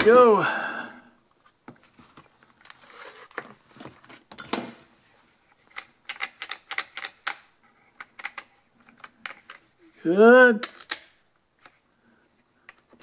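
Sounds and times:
plastic parts scraping and clunking: 5.4s - 9.9s.

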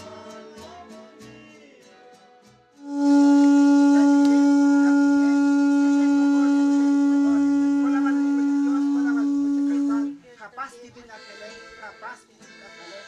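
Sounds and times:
conch shell trumpet note: 2.8s - 10.2s.

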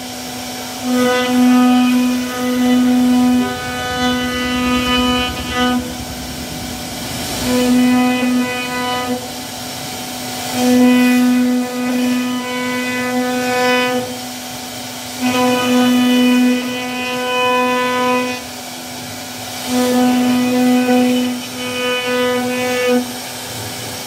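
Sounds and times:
rough wood cutting noise: 0.0s - 14.2s
router spindle whine: 0.0s - 19.3s.

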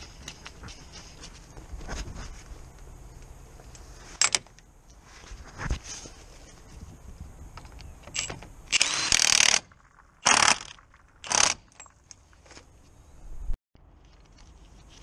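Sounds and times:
impact wrench bursts: 8.1s - 12.0s.

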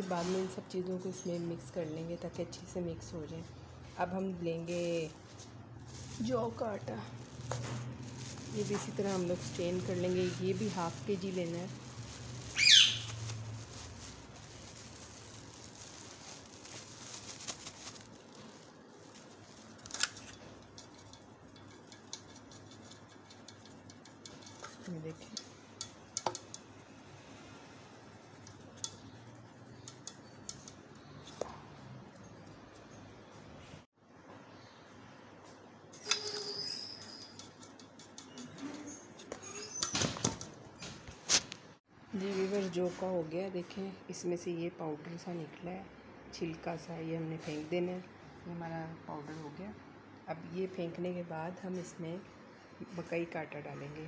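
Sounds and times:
flour rustling through a sieve: 4.5s - 25.6s
bird chirping: 12.5s - 13.2s
sieve tapping and rattling: 20.2s - 26.7s.

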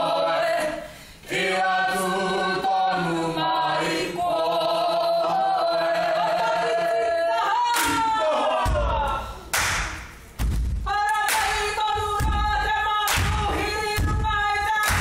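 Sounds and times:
group chanting in unison: 0.0s - 9.4s.

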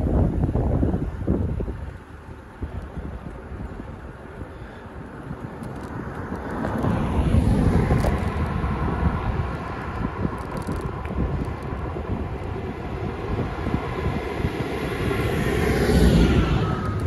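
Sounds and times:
wind buffeting microphone: 0.0s - 17.0s
car passing: 4.6s - 17.0s.

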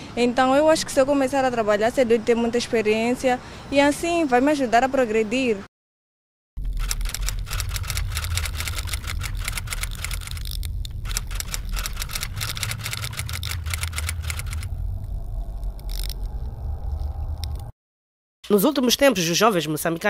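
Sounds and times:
fast mechanical clicking: 6.6s - 14.7s
steady low hum: 6.6s - 17.7s.

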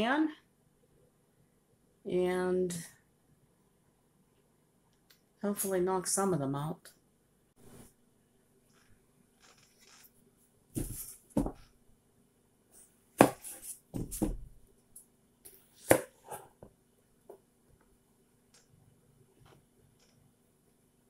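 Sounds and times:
knife chopping on board: 13.2s - 14.4s, 15.8s - 16.5s.

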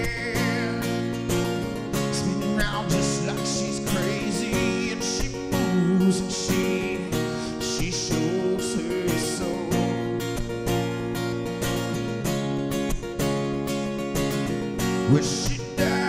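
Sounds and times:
man singing: 0.0s - 1.2s, 1.9s - 10.2s, 15.0s - 16.0s
acoustic guitar strumming: 0.0s - 16.0s.

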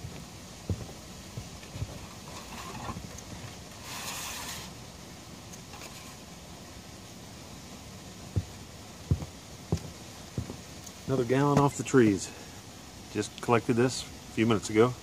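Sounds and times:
footsteps on wooden deck: 0.0s - 3.9s, 8.2s - 11.8s
brief hiss: 3.8s - 4.8s.

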